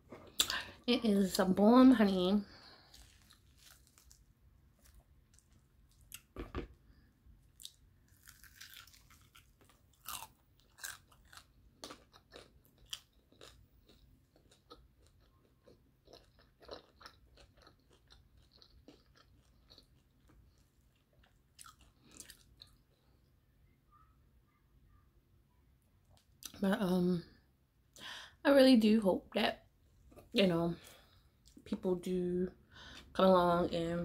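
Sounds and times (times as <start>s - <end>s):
person chewing crunchy chicken: 2.7s - 6.8s, 7.5s - 23.0s.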